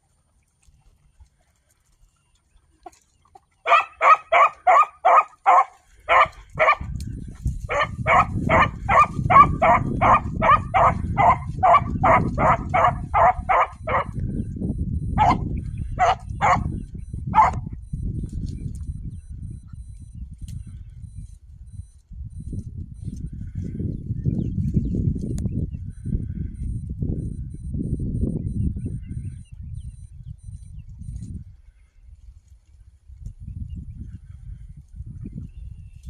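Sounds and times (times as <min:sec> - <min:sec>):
donkey braying: 0:03.6 - 0:07.0, 0:07.6 - 0:14.3, 0:15.0 - 0:17.8.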